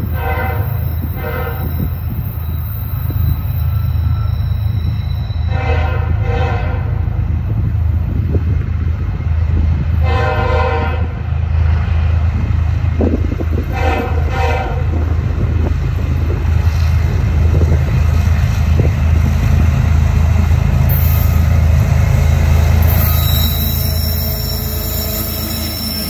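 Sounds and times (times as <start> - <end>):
train horn blasts: 0.0 - 2.0, 5.4 - 7.1, 10.0 - 11.3, 13.6 - 15.1
train rumble: 0.0 - 26.0.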